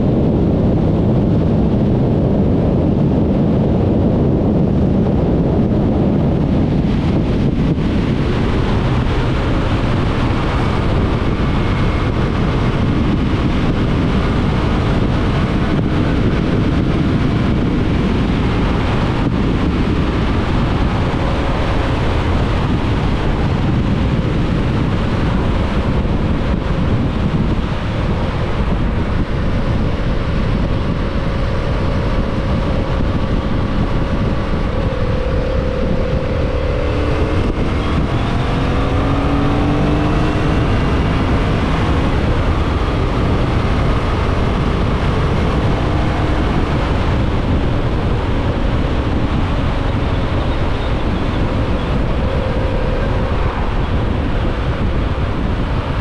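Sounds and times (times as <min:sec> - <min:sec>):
motorcycle engine running: 0:00.0 - 0:56.0
wind rush over microphone: 0:00.0 - 0:56.0.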